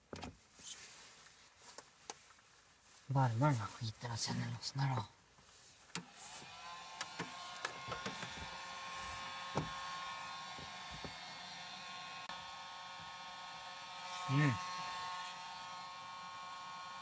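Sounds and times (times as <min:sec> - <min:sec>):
heat gun fan whirring: 0:05.9 - 0:17.0.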